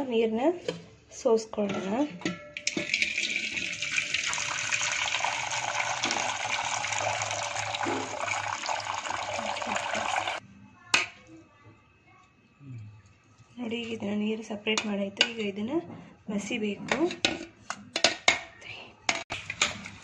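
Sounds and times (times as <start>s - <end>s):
water pouring into metal vessel: 2.6s - 10.4s.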